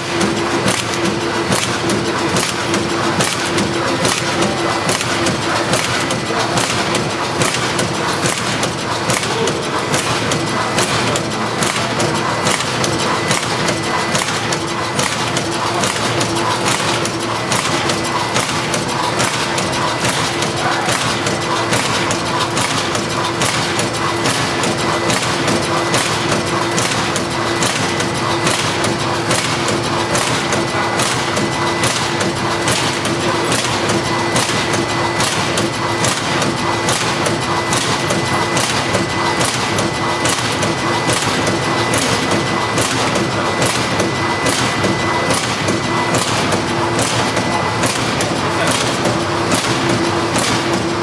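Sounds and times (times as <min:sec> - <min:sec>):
machine clacking: 0:00.0 - 0:51.0
packing machine hum and whine: 0:00.0 - 0:51.0.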